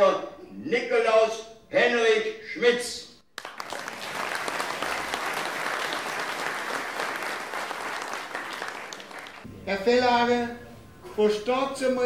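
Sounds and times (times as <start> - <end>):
audience applauding: 3.3 - 9.5.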